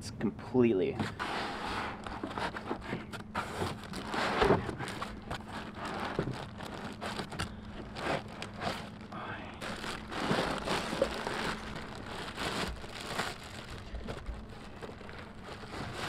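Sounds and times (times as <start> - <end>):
foam rubbing and creaking: 1.0 - 16.0
plastic wrap crinkling: 3.3 - 16.0.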